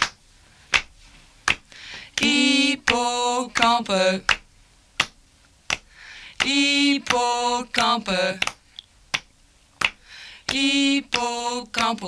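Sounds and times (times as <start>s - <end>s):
person chanting a word: 2.2s - 4.2s.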